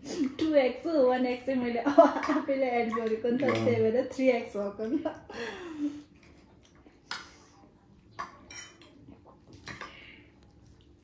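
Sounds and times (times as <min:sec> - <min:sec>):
utensils clinking on dishes: 0:02.2 - 0:03.9, 0:08.2 - 0:08.9.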